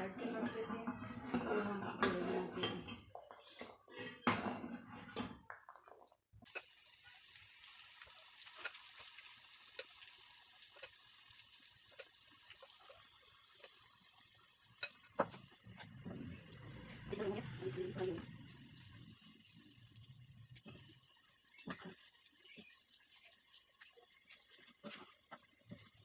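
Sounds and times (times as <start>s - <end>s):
pot and utensils knocking: 0.1s - 5.8s, 14.8s - 16.2s
batter sizzling in hot oil: 6.4s - 26.0s.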